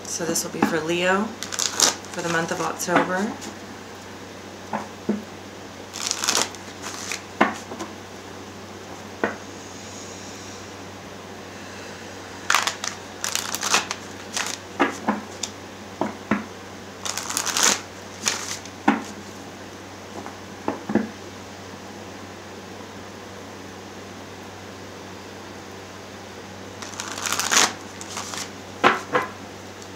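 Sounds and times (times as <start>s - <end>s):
cards being shuffled: 1.4s - 2.8s, 5.9s - 7.8s, 12.5s - 15.6s, 17.0s - 19.2s, 26.8s - 29.0s.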